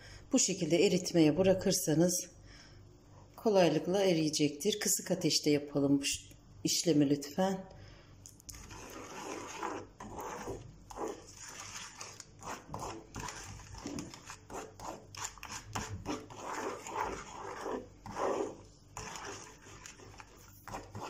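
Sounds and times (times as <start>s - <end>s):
wooden spoon scraping a pan: 8.5s - 21.0s.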